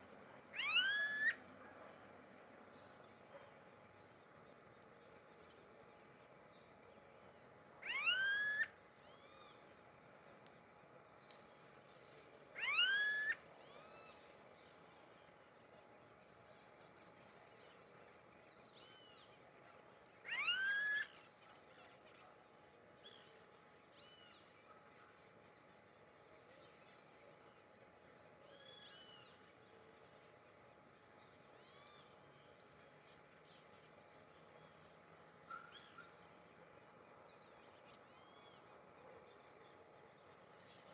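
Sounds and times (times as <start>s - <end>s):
faint short bird calls: 0.5s - 1.4s, 20.2s - 22.3s, 28.4s - 29.4s, 35.4s - 36.4s
bird calling rising calls: 0.6s - 1.4s, 7.8s - 9.6s, 12.6s - 14.1s, 20.2s - 21.2s.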